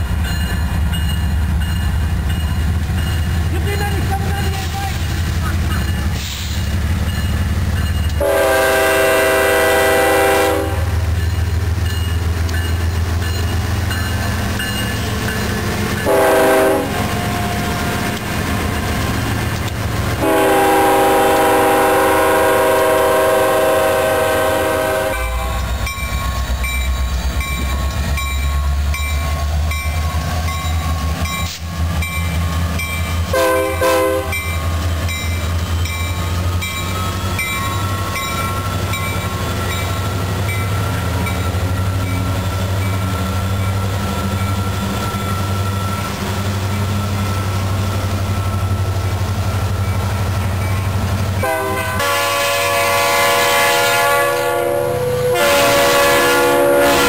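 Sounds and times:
diesel locomotive engines rumbling: 0:00.0 - 0:57.0
train air horn: 0:08.2 - 0:11.0, 0:16.0 - 0:17.1, 0:20.2 - 0:25.6, 0:33.3 - 0:34.4, 0:51.4 - 0:57.0.

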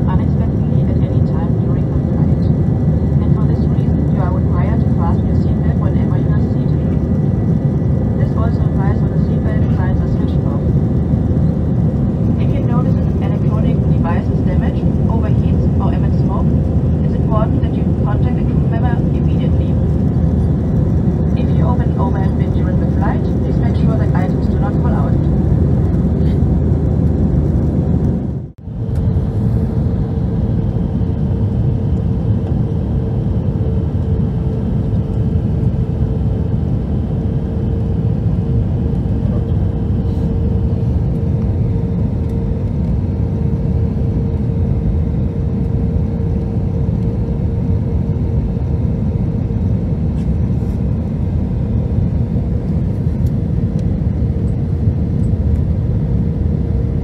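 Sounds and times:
low roar of airflow and engines: 0:00.0 - 0:57.0
mid-pitched hum: 0:00.0 - 0:57.0.

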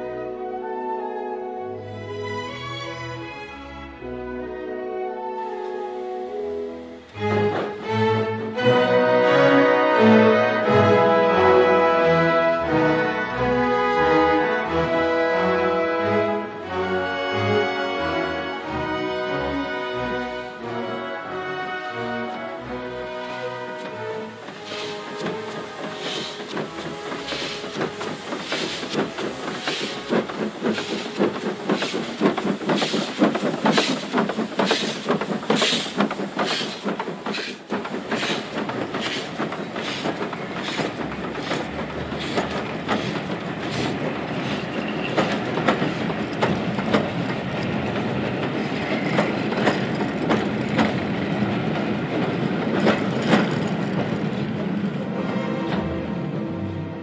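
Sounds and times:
train clattering on rails: 0:07.2 - 0:08.0, 0:22.3 - 0:56.7
steam locomotive exhaust beats: 0:23.1 - 0:55.0.

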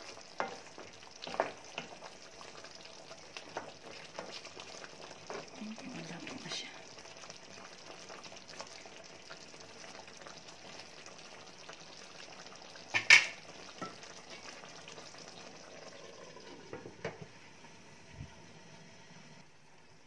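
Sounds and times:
sauce simmering in a frying pan: 0:00.0 - 0:20.0
glass lid clinking on a pan: 0:12.9 - 0:14.0.

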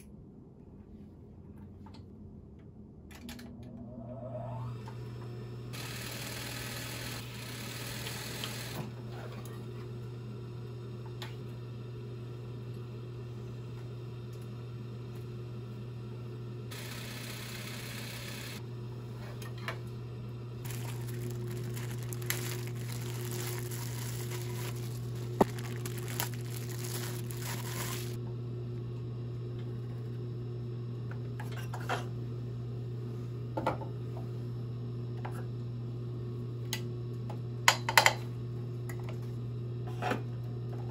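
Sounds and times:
sewing machine motor hum: 0:04.4 - 0:09.3, 0:16.6 - 0:19.6, 0:20.2 - 0:28.2
fabric rustling: 0:20.7 - 0:28.2.

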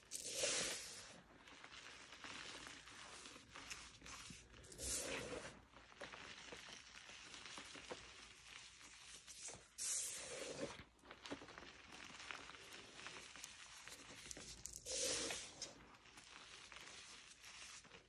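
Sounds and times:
gritty crunching of chalk powder: 0:00.0 - 0:18.0
hissy bursts: 0:14.9 - 0:15.6.

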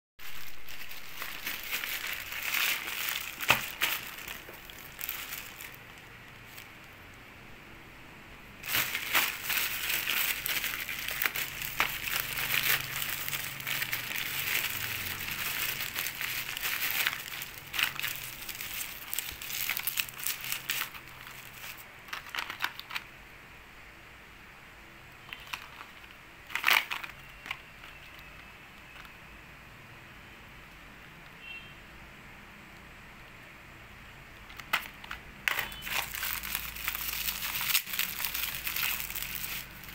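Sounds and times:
plastic mailer and bubble wrap crinkling: 0:00.2 - 0:07.0, 0:08.6 - 0:23.1, 0:25.2 - 0:29.3, 0:34.4 - 0:39.9.

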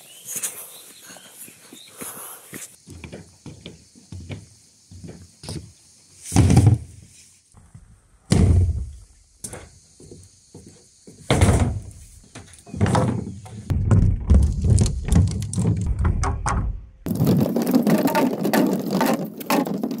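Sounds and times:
bamboo poles thudding on wood: 0:06.3 - 0:06.9, 0:08.3 - 0:09.6, 0:11.3 - 0:20.0.

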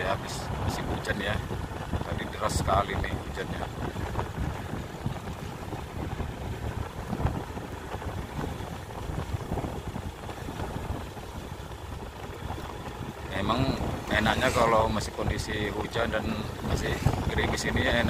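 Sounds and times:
motorcycle engine drone: 0:00.0 - 0:18.0
wind rumbling on microphone: 0:00.0 - 0:18.0
tyres hissing on wet asphalt: 0:12.4 - 0:18.0.

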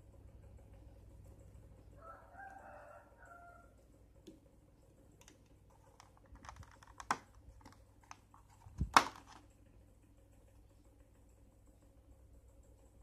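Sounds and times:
plastic clicks and crinkles: 0:05.2 - 0:09.5
plastic snapping and cracking: 0:06.0 - 0:09.4.

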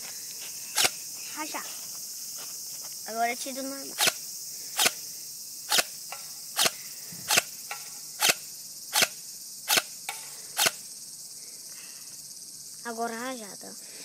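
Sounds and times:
airsoft rifle single shots: 0:06.6 - 0:10.8.

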